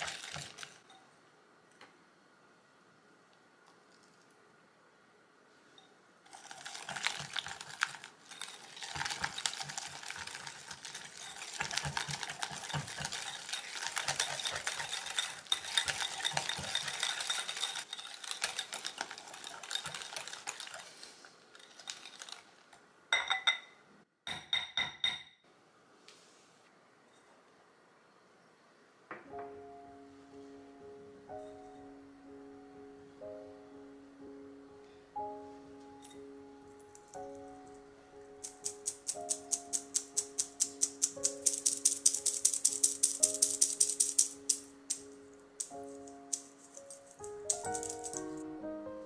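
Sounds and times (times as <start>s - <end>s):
whisk clicking against glass bowl: 8.3s - 20.8s, 38.4s - 45.0s
whisk tapping on bowl: 8.4s - 20.7s.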